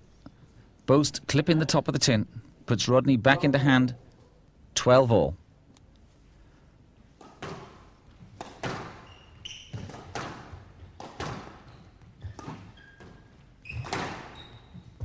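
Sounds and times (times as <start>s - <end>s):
shoes squeaking on court floor: 7.0s - 15.0s
squash ball knocks: 9.7s - 14.4s.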